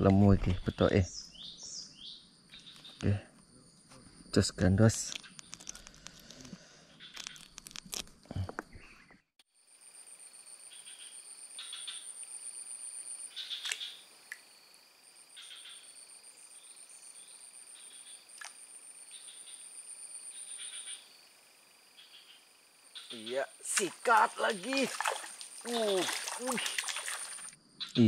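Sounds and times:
insect trills: 0:00.6 - 0:08.8, 0:09.5 - 0:28.0
frogs pulsed calls: 0:05.2 - 0:07.6, 0:13.2 - 0:14.4, 0:17.8 - 0:21.2, 0:21.9 - 0:28.0.

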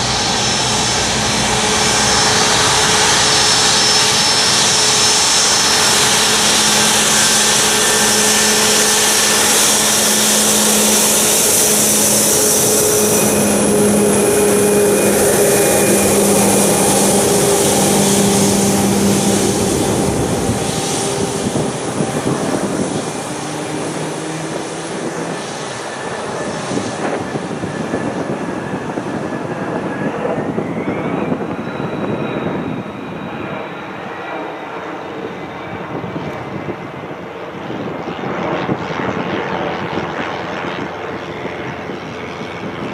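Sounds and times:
whine rising in pitch: 0:00.0 - 0:37.2
jet engines with high whine: 0:00.0 - 0:42.9.

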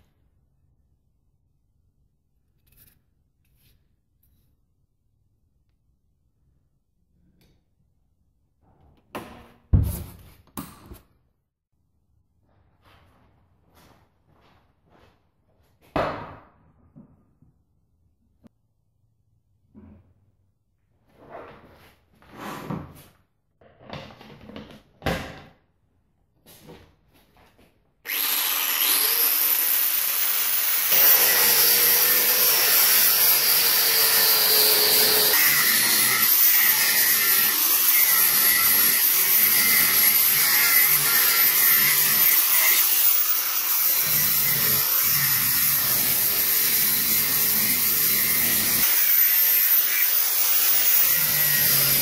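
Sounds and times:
angle grinder cutting steel: 0:28.1 - 0:52.0.

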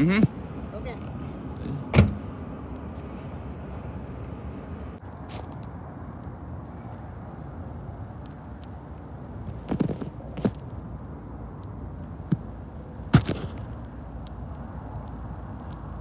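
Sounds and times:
low outdoor rumble: 0:00.0 - 0:16.0
sharp knocks and thumps: 0:13.1 - 0:13.7.

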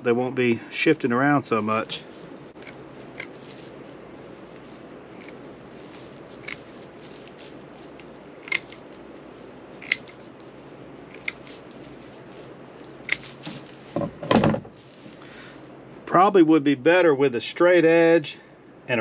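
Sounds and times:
background hiss: 0:00.0 - 0:19.0
dull rustles: 0:01.3 - 0:14.0, 0:14.6 - 0:15.8
scissors snipping thick pad: 0:08.0 - 0:08.9, 0:09.8 - 0:10.2, 0:11.1 - 0:11.8, 0:13.0 - 0:13.7.

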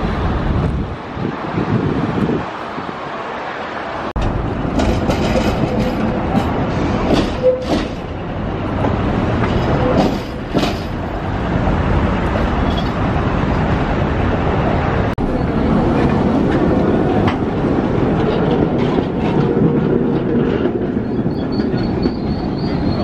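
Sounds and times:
tram rolling rumble: 0:00.0 - 0:23.0
tram wheels clacking over joints: 0:04.2 - 0:14.1, 0:15.2 - 0:23.0.

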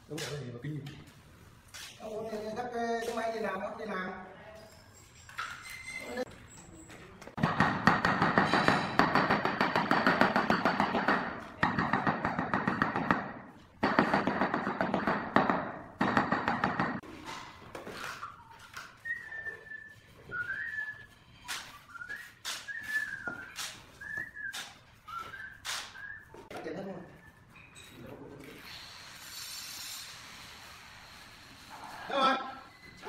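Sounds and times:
sharp knocks: 0:07.4 - 0:17.0.

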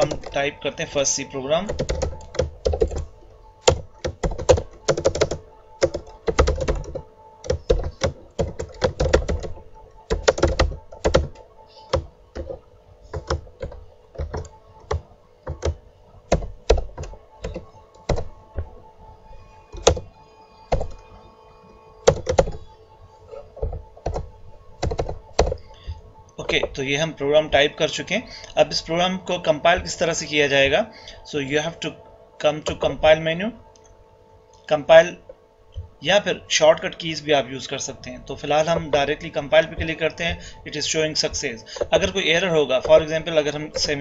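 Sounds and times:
keyboard typing: 0:00.0 - 0:28.9, 0:38.0 - 0:44.0
faint steady hum: 0:00.0 - 0:44.0.

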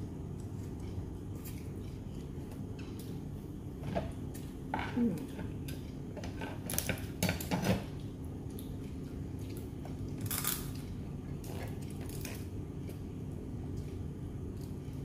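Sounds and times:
steady low hum: 0:00.0 - 0:15.0
crab shell cracking: 0:10.1 - 0:12.5.

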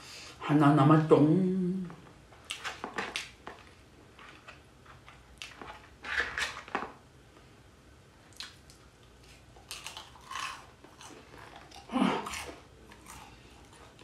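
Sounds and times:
chewing crunchy food: 0:08.2 - 0:14.0.

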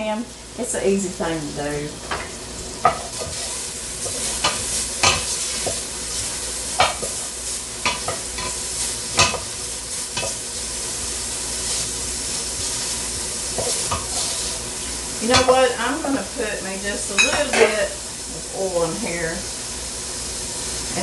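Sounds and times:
bacon sizzling in a pot: 0:00.0 - 0:21.0
wooden spoon knocking on pot: 0:06.8 - 0:07.2.

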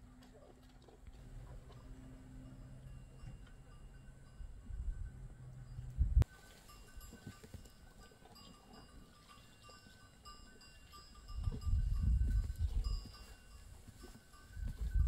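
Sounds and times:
low rumble: 0:01.4 - 0:06.2
livestock bells ringing: 0:01.7 - 0:15.0.

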